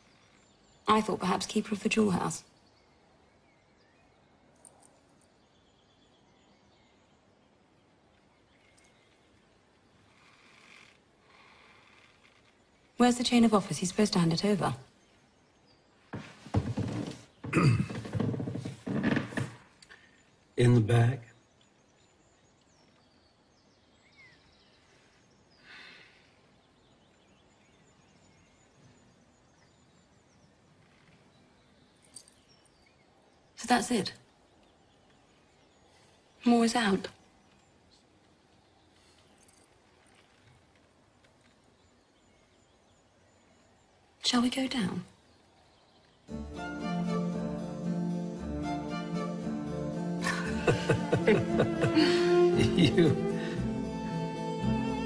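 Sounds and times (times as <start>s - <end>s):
faint bird chirps: 0.0s - 18.2s, 19.7s - 46.3s
soft rustle: 8.1s - 20.5s, 30.4s - 33.0s, 37.1s - 42.6s.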